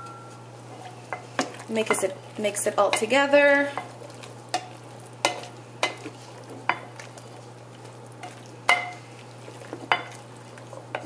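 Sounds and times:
steady low hum: 0.0 - 11.0
wooden spoon stirring food: 0.3 - 11.0.

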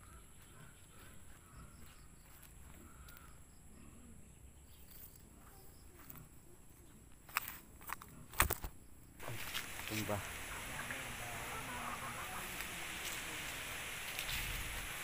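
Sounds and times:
faint bird chirps: 0.0 - 7.1
high insect buzz: 9.2 - 15.0.

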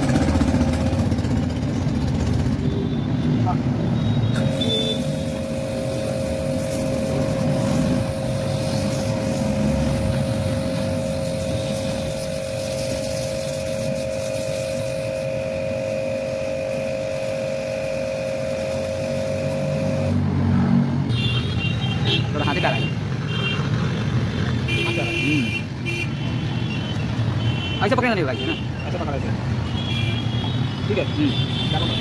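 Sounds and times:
pressure washer pump whining: 4.2 - 20.2
water jet hissing: 4.3 - 20.2.

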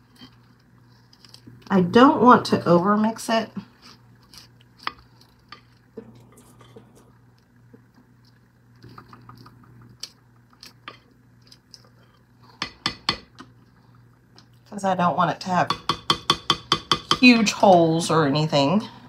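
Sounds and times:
spatula tapping glass: 15.7 - 17.2.

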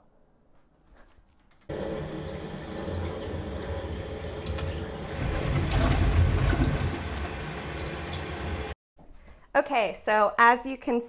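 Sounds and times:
small pump humming: 1.7 - 8.8
water rushing through hoses: 1.7 - 8.8.

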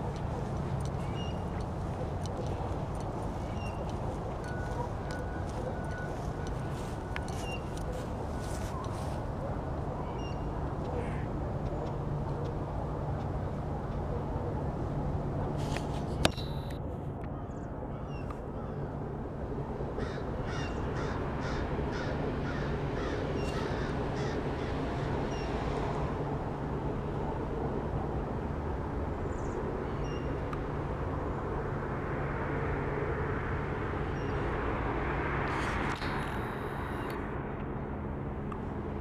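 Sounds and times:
distant traffic hum: 0.0 - 39.0
birds giving harsh calls: 20.0 - 24.5.

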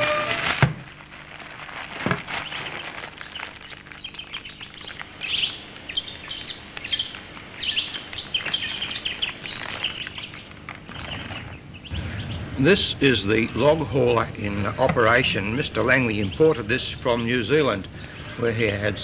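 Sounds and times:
faint low hum: 0.0 - 19.0
birds chirping: 2.1 - 19.0.

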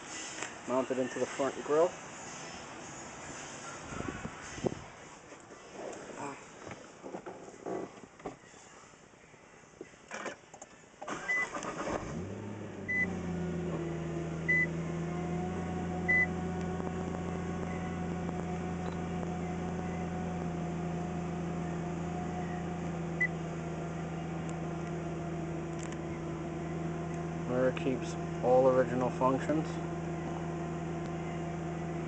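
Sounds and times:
car engine starting and idling: 11.0 - 32.0
short electronic beeps: 16.1 - 16.3.

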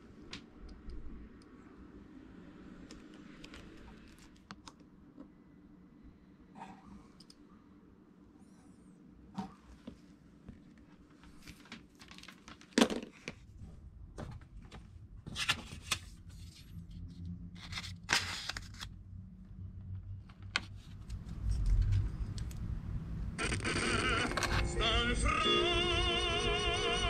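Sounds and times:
low hum: 19.0 - 27.0.

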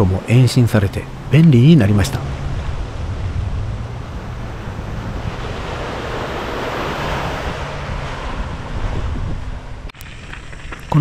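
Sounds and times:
wind rumbling on microphone: 0.9 - 11.0
small waves washing onto sand: 4.0 - 9.1.

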